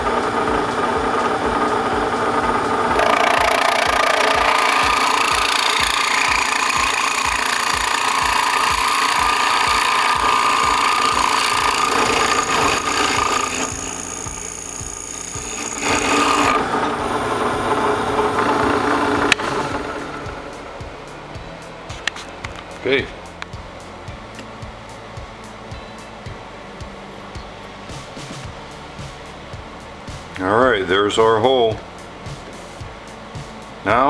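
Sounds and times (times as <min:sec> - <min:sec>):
drill press drilling metal: 0:02.6 - 0:20.2.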